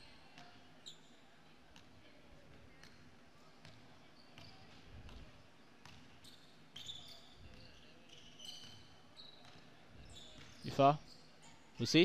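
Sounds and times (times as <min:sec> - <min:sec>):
sneaker squeaks on floor: 0:00.0 - 0:01.2, 0:03.6 - 0:05.2, 0:05.8 - 0:11.8.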